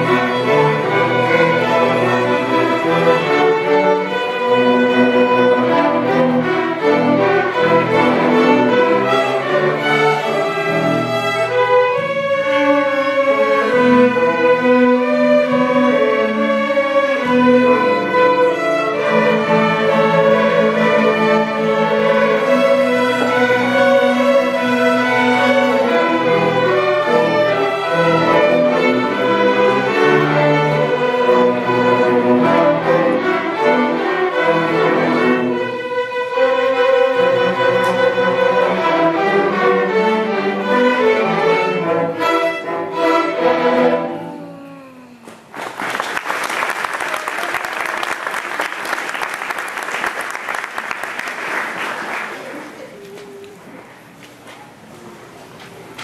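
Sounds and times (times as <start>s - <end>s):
string orchestra playing: 0.0s - 45.5s
audience applause: 45.0s - 53.6s.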